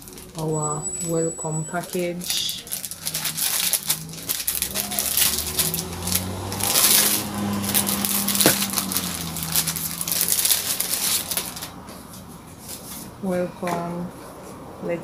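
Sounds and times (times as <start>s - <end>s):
plastic packaging crinkling: 0.0s - 0.5s, 1.7s - 11.9s.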